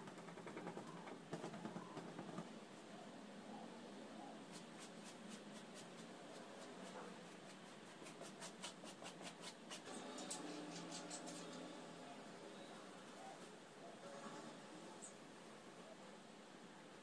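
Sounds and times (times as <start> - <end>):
paintbrush strokes on canvas: 4.4 - 11.7.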